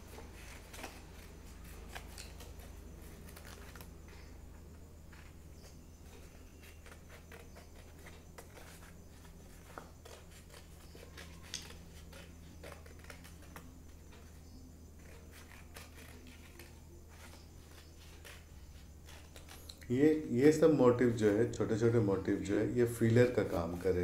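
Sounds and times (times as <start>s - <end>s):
paper rustling: 0.0s - 4.3s, 5.1s - 21.9s, 22.8s - 24.0s
scissors snipping paper: 6.1s - 20.1s.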